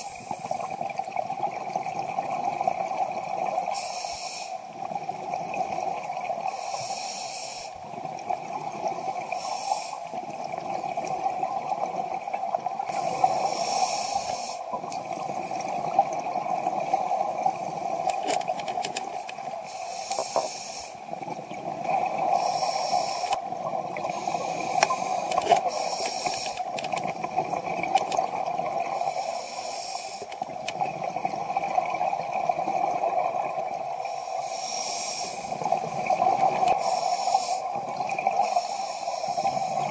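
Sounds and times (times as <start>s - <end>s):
regulator breathing hiss: 3.7s - 4.6s, 6.5s - 7.8s, 9.4s - 10.1s, 13.0s - 14.7s, 19.6s - 21.0s, 22.3s - 23.4s, 24.1s - 26.8s, 29.0s - 30.4s, 34.1s - 35.6s, 36.8s - 37.8s, 38.4s - 39.9s
exhaled bubbles: 14.6s - 19.6s, 20.9s - 29.4s, 30.0s - 34.2s, 35.3s - 39.9s.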